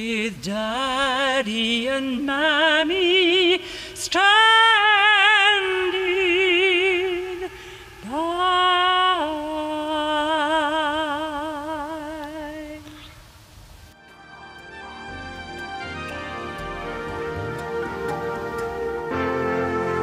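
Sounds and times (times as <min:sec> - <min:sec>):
woman singing unaccompanied: 0:00.0 - 0:13.2.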